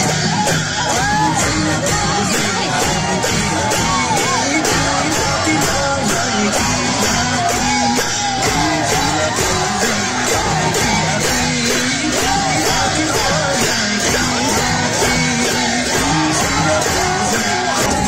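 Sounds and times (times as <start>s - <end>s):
crowd singing and yelling: 0.0s - 18.0s.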